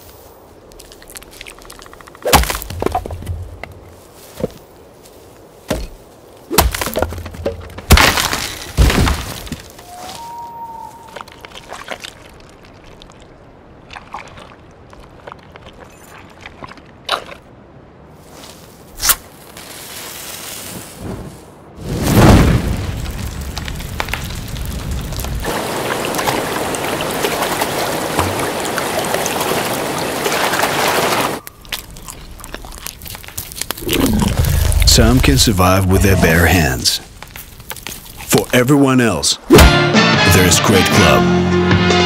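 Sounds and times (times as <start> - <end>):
sharp cracks and heavy thuds: 1.4 - 4.6, 5.6 - 9.8, 21.8 - 26.8.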